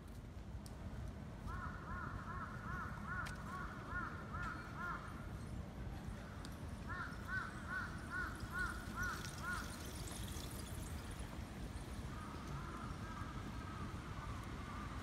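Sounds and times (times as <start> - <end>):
crow cawing: 1.5 - 5.1, 6.9 - 9.7.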